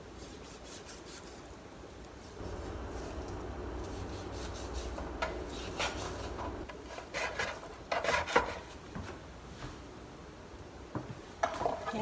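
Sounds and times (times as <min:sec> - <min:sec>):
knife scraping cutting board: 0:03.8 - 0:08.8.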